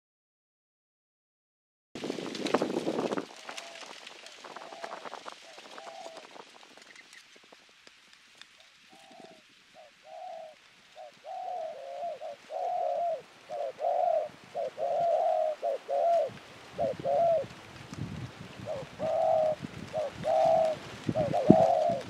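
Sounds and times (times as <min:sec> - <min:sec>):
doves cooing: 0:03.3 - 0:07.2, 0:08.6 - 0:17.6, 0:18.6 - 0:22.0.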